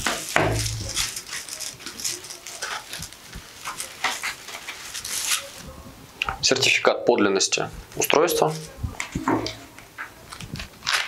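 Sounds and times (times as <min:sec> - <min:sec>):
cloth pouch rustling: 0:00.0 - 0:05.6.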